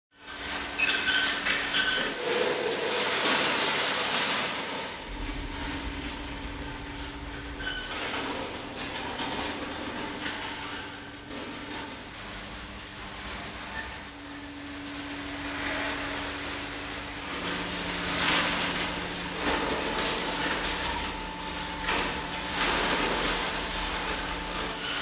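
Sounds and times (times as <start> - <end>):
faint steady hum: 5.0 - 11.2.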